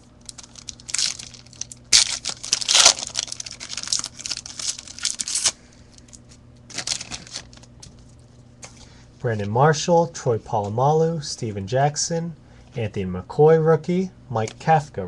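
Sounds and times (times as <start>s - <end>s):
wrapper tearing and crinkling: 0.2s - 8.0s.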